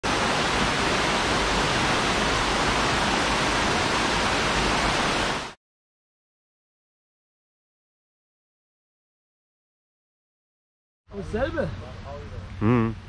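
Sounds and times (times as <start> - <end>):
water rushing over rock ledge: 0.0 - 5.6.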